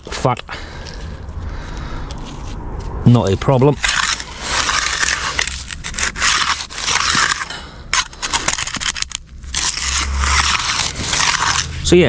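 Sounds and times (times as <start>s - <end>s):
trowel scraping wet concrete: 3.2s - 12.0s.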